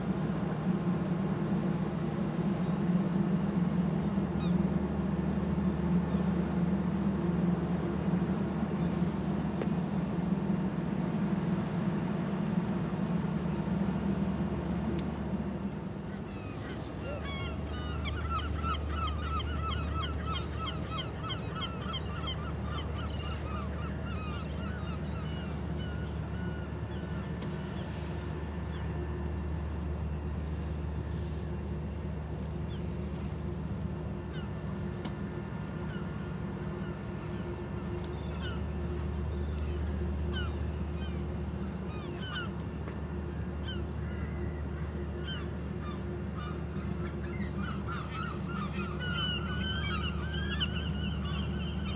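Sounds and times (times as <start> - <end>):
ship engines humming: 0.0 - 51.9
birds calling: 16.0 - 30.4, 31.4 - 51.9.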